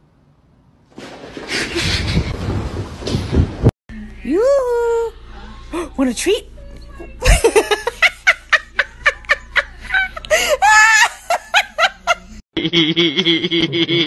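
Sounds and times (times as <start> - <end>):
person laughing: 7.2 - 14.0.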